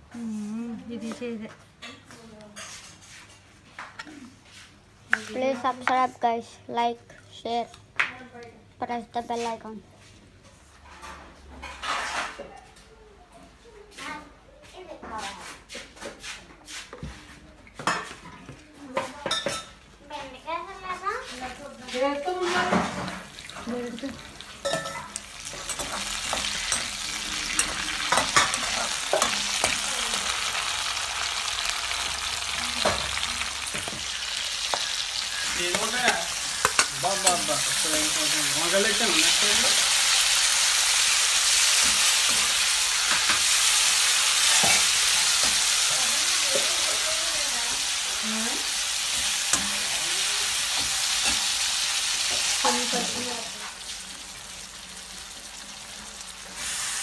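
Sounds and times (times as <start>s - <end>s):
vegetables sizzling in hot oil: 21.3s - 57.0s
spoon clicking and scraping pan: 24.5s - 29.9s, 32.8s - 38.0s.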